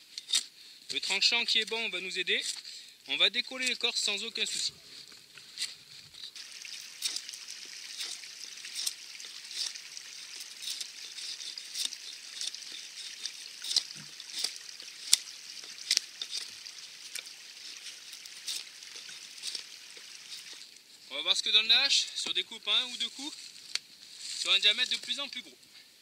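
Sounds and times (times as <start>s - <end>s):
hatchet scraping bark: 4.5s - 20.6s.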